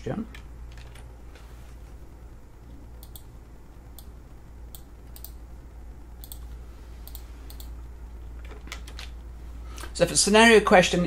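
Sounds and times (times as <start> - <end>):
low hum: 0.0 - 11.0
computer keys clicking: 3.0 - 3.3, 3.9 - 5.4, 6.2 - 7.8.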